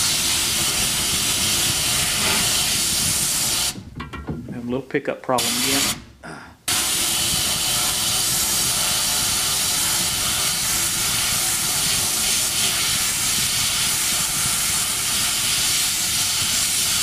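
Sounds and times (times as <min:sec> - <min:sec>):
bead blasting hiss on metal: 0:00.0 - 0:03.8, 0:05.4 - 0:06.0, 0:06.7 - 0:17.0.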